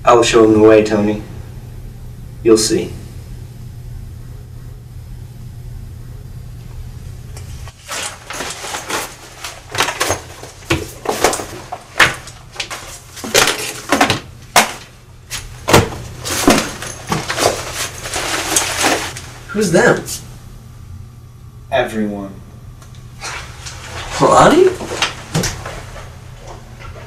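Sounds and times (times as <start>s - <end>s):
low steady hum: 0.0s - 27.0s
objects knocking and clattering: 7.7s - 19.2s.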